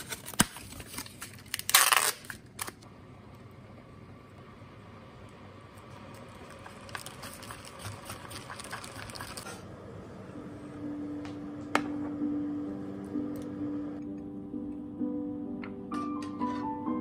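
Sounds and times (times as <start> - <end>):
pasta water boiling and bubbling: 5.2 - 9.6
soft music with held notes: 10.8 - 17.0.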